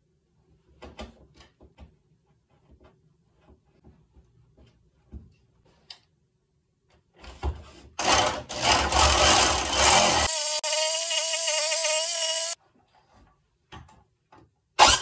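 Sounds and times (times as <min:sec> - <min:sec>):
electric jigsaw cutting plywood: 0:08.0 - 0:12.6, 0:14.8 - 0:15.0.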